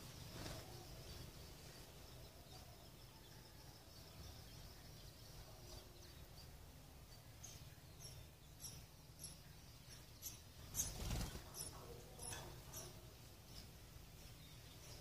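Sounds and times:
sparrows chirping: 0.0 - 15.0
bird wings rustling: 10.9 - 11.6.

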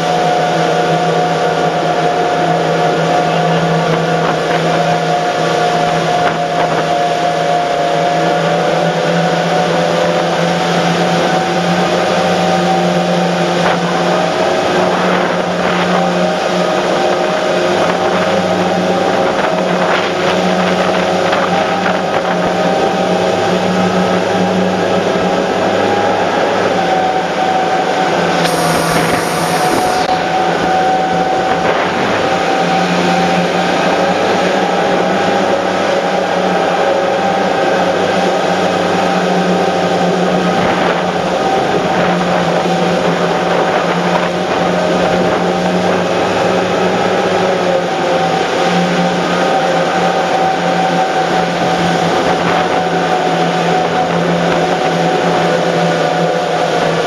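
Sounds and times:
boat engines droning: 0.0 - 57.0
wake and spray rushing: 27.6 - 34.5
short hiss: 28.4 - 30.1.

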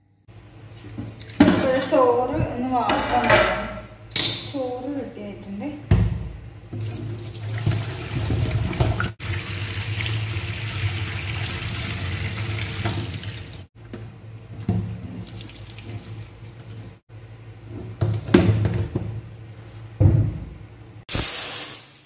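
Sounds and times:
water pouring into a metal sink: 6.8 - 17.0
water trickling: 7.2 - 17.0.

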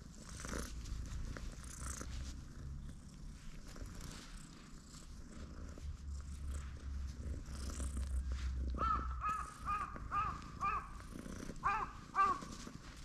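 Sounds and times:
cat purring: 0.0 - 13.0
bird calling: 8.8 - 11.0, 11.6 - 12.5.

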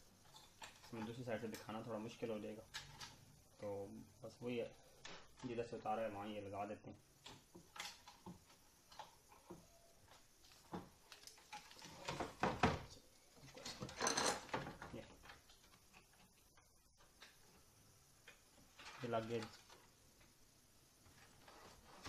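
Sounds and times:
tape and plastic rustling: 7.2 - 12.6.

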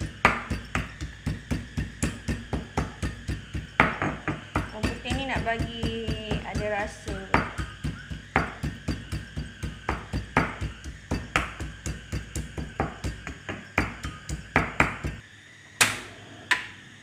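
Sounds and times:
pestle pounding in stone mortar: 0.0 - 15.2.

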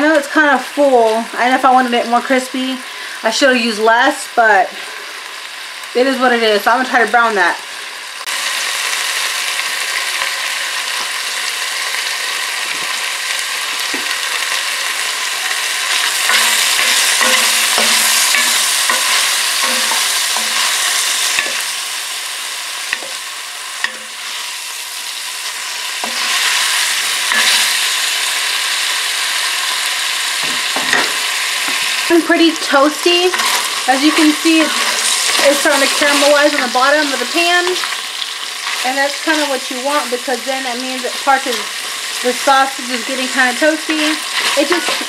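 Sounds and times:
sausage sizzling in oil: 0.0 - 45.0
spoon clacking against pot: 16.2 - 21.6.

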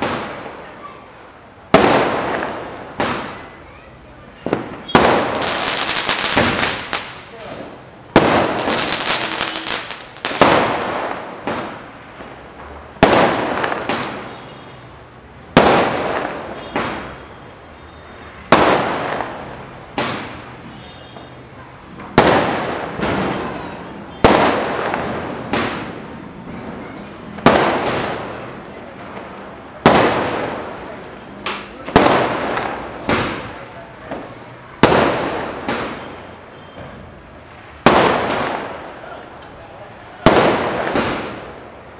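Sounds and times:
fireworks bangs: 0.0 - 41.9
fireworks crackle: 0.0 - 41.9.

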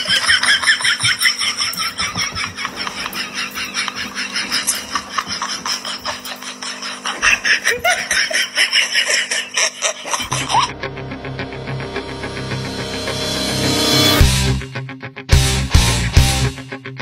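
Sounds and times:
person laughing wheezily: 0.0 - 10.9.

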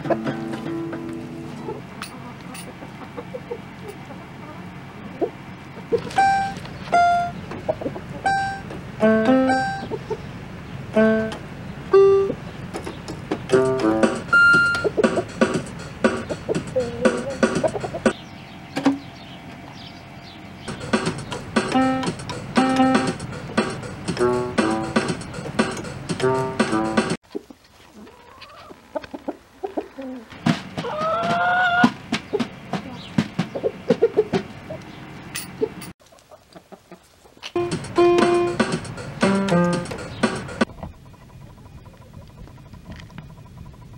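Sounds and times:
chickens pecking on drumhead: 0.0 - 8.9, 12.6 - 18.2, 20.6 - 35.0, 35.6 - 43.8
toy electronic keyboard notes: 6.1 - 7.4, 8.2 - 10.0, 11.0 - 12.4, 13.5 - 18.2, 20.7 - 27.1, 37.6 - 40.7
chicken call: 13.6 - 15.3, 16.2 - 18.2, 27.3 - 34.8.

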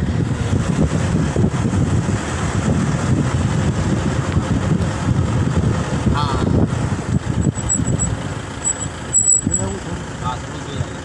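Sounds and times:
wind buffeting microphone: 0.0 - 8.5
car road noise: 0.0 - 11.0.

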